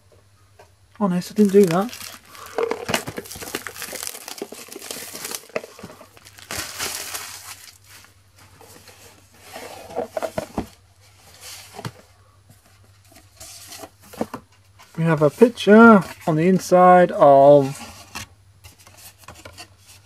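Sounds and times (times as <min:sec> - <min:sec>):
plastic wrap crinkling and tearing: 0:01.2 - 0:08.2
cardboard rustles and knocks: 0:01.6 - 0:07.2, 0:09.6 - 0:10.8.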